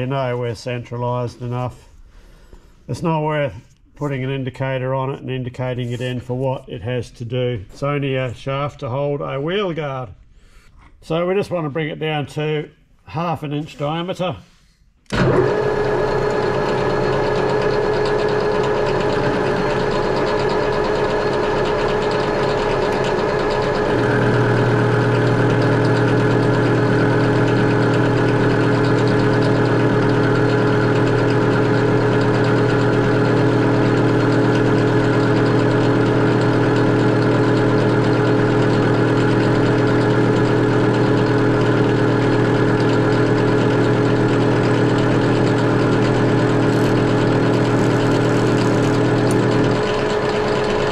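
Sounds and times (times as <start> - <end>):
metal lathe motor humming: 15.1 - 50.9.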